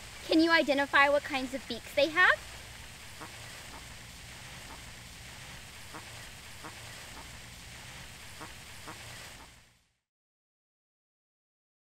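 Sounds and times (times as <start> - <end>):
outdoor background noise: 0.0 - 10.0
ducks quacking faintly: 1.0 - 9.8.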